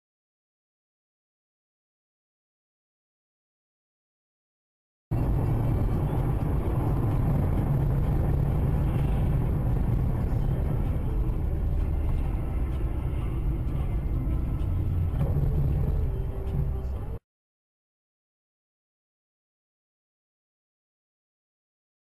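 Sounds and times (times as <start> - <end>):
car road and engine rumble: 5.1 - 17.2.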